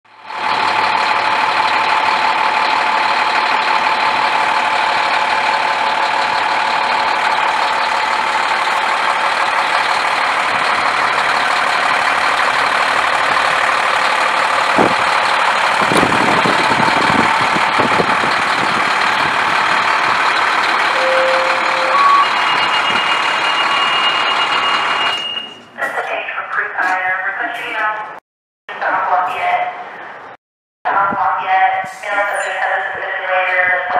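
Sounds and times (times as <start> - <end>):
fire engine idling: 0.1 - 27.8
steady high tone: 20.9 - 25.6.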